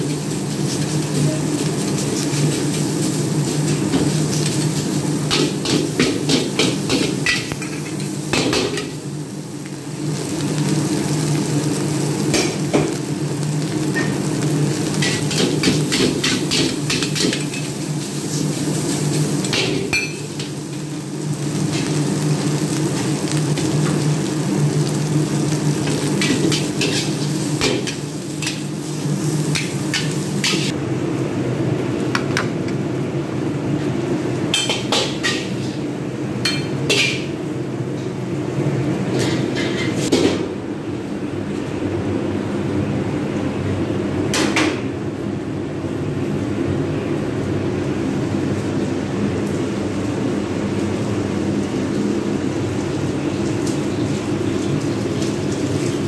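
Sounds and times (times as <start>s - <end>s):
food sizzling: 0.0s - 37.7s, 48.6s - 56.0s
ladle scraping and clanging wok: 26.2s - 30.7s.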